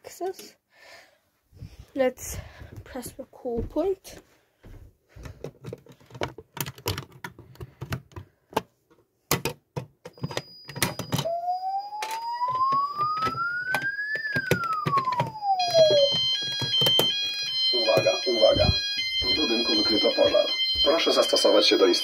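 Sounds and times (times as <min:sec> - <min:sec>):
faint steady high tone: 0:10.1 - 0:13.8, 0:14.4 - 0:22.0
fire alarm siren rising and falling: 0:10.7 - 0:22.0.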